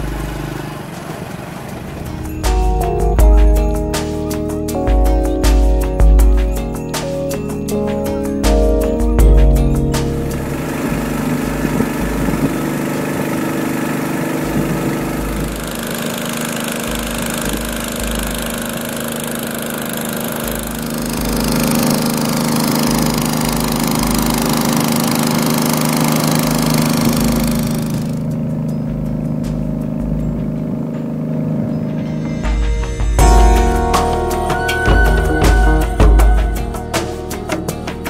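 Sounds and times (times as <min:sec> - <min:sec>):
boat engine running: 0:00.0 - 0:38.0
wind and water rushing: 0:10.5 - 0:16.1.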